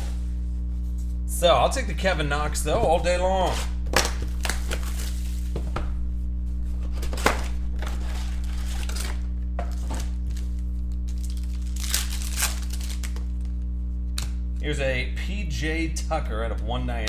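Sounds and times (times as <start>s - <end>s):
low electrical hum: 0.0s - 17.0s
plastic wrapping crinkling and tearing: 3.9s - 5.5s, 6.9s - 13.6s.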